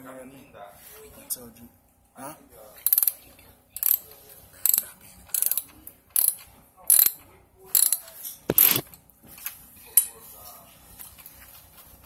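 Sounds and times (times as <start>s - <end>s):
hand ratchet clicking: 2.8s - 3.1s, 3.8s - 4.0s, 4.6s - 8.8s.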